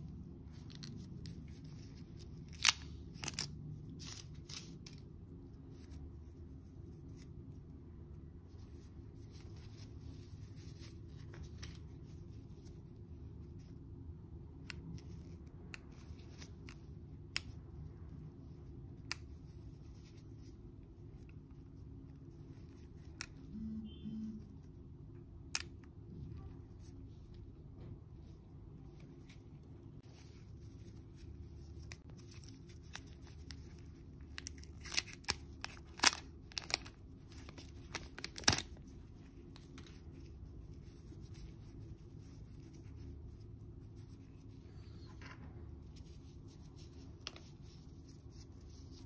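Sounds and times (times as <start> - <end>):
faint low hum: 0.0 - 49.0
plastic packaging clicks and crinkles: 31.8 - 40.0.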